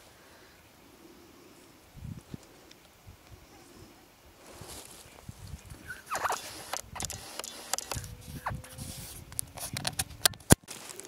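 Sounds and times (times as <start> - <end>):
rustling through low vegetation: 0.0 - 11.0
short falling squeak: 5.8 - 6.6
sharp click: 6.1 - 8.1.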